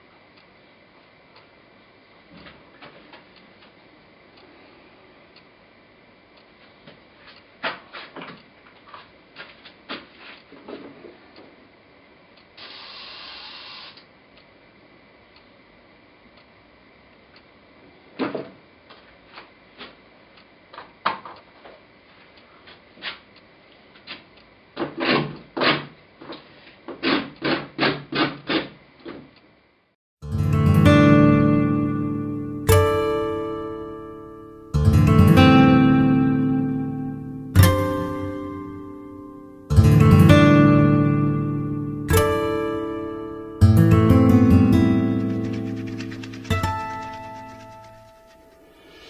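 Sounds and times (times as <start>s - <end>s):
rasping brush stroke: 44.9s - 49.0s.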